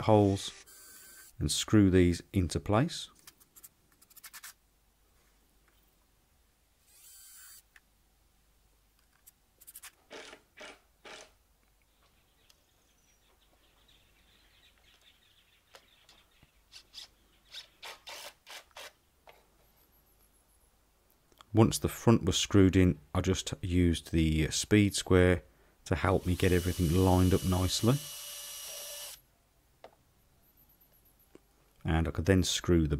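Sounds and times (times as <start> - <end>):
screws and wood scratching: 3.2 - 4.6, 9.1 - 11.3, 16.7 - 19.0, 26.2 - 29.2.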